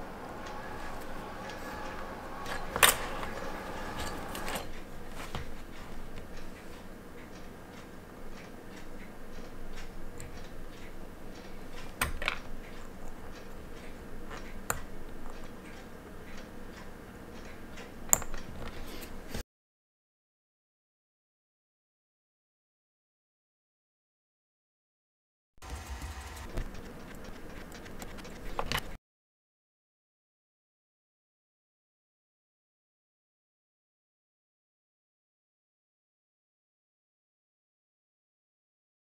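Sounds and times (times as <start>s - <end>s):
light ticking: 0.0s - 18.8s
sharp clicks: 25.6s - 29.0s.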